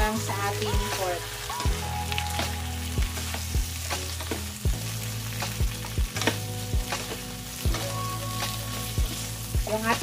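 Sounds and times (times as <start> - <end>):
meat sizzling in hot oil: 0.0 - 10.0.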